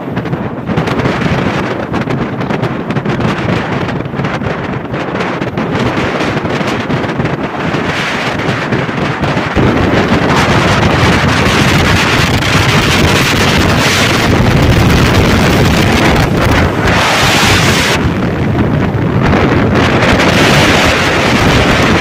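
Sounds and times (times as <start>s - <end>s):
wind rushing over microphone: 0.0s - 22.0s
motorcycle engine running: 7.4s - 22.0s.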